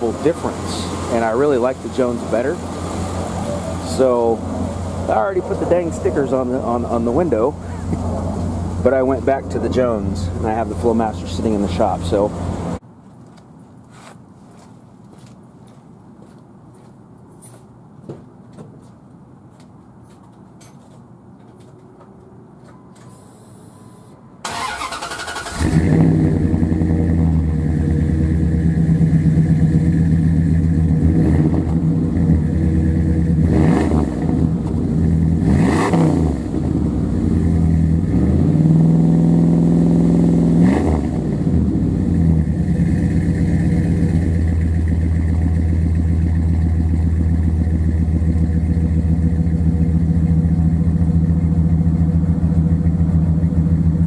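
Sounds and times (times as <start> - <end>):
engine revving and idling: 0.0 - 12.8, 24.5 - 54.0.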